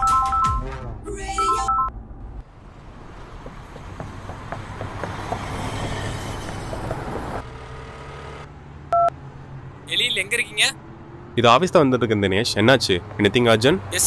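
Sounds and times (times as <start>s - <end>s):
road traffic noise: 0.1s - 14.0s
car pulling over: 1.9s - 9.9s.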